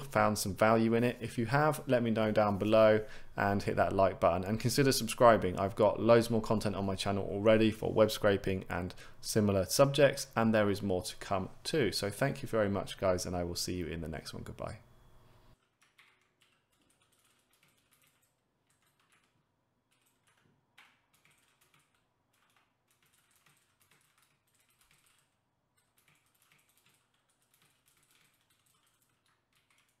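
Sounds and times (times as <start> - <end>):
keyboard typing: 15.6 - 30.0.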